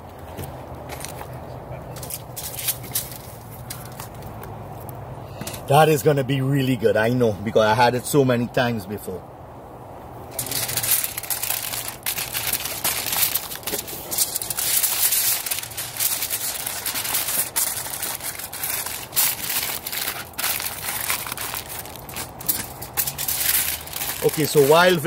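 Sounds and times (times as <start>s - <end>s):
aluminium foil crinkling: 2.0s - 4.3s, 10.3s - 25.0s.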